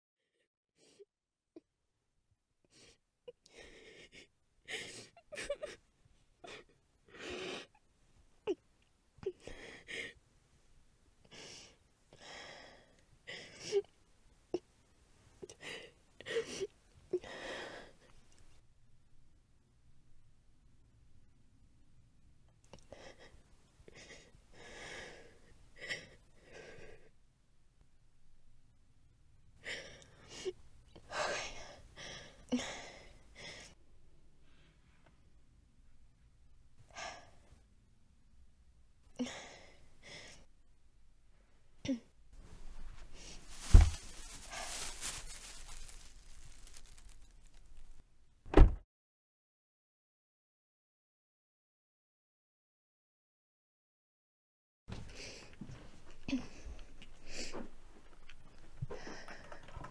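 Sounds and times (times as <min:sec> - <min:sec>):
person breathing heavily: 0:11.3 - 0:13.8, 0:42.6 - 0:47.9
person gasping breaths: 0:11.3 - 0:13.9, 0:15.5 - 0:18.1, 0:29.6 - 0:33.8, 0:42.6 - 0:47.3, 0:58.8 - 0:59.7
gasping breaths: 0:42.8 - 0:47.7, 0:58.5 - 0:59.9.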